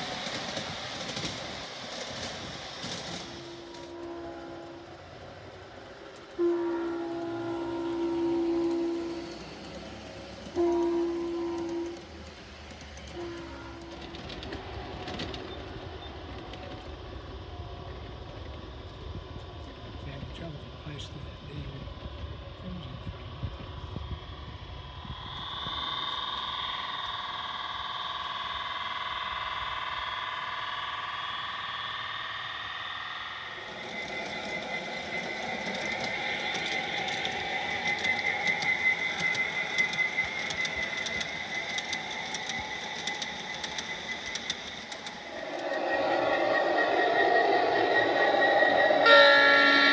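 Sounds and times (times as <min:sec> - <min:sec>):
model train cars rumbling on track: 0:00.0 - 0:49.9
wheels clicking over rail joints: 0:08.8 - 0:17.0, 0:33.7 - 0:45.8.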